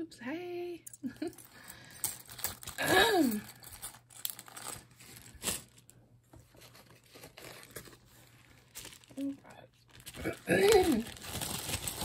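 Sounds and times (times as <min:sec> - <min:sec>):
plastic and paper crinkling: 0:02.1 - 0:12.0.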